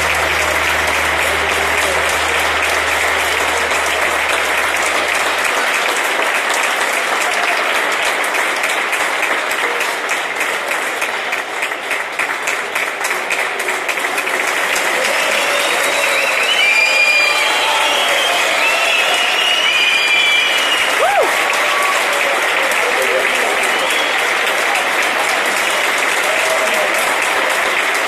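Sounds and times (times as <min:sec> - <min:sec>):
low steady tone: 0:00.0 - 0:05.6
audience applauding: 0:00.0 - 0:28.0.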